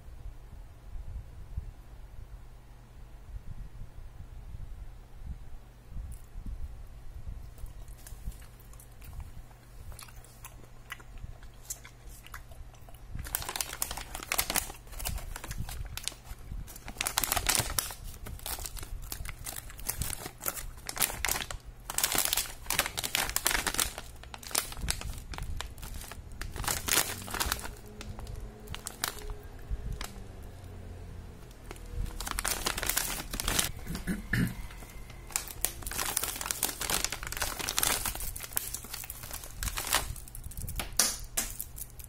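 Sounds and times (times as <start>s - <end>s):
plastic bags crinkling: 13.1s - 30.2s, 31.5s - 42.0s.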